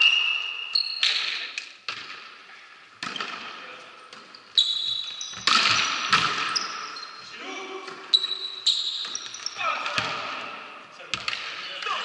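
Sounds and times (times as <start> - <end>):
shoes squeaking on court floor: 2.5 - 10.2.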